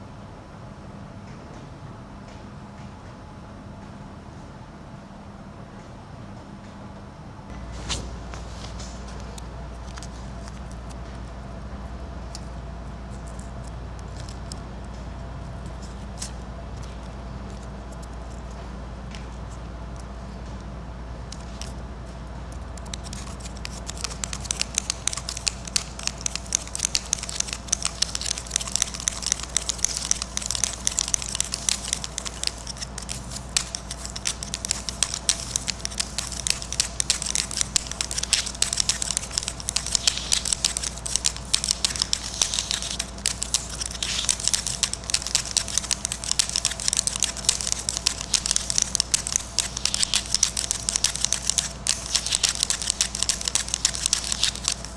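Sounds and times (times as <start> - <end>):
steady low hum: 0.0 - 54.9
sticks scratching on paper: 22.8 - 54.9.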